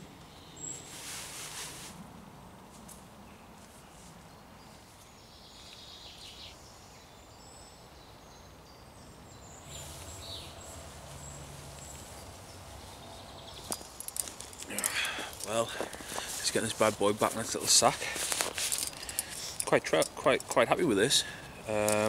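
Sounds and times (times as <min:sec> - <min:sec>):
faint outdoor background noise: 0:00.0 - 0:22.0
low steady rumble: 0:09.6 - 0:14.6.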